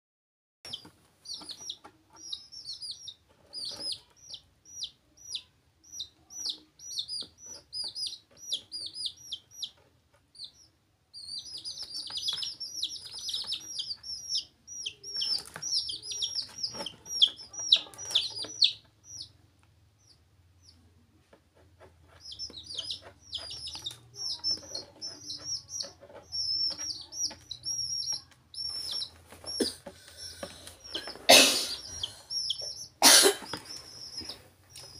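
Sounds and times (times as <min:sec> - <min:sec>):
chicks peeping: 0:00.7 - 0:34.9.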